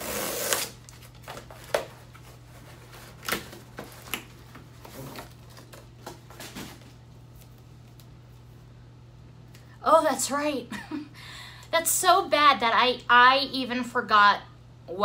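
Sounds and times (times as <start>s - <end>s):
tear strip ripping open: 0.0s - 0.9s.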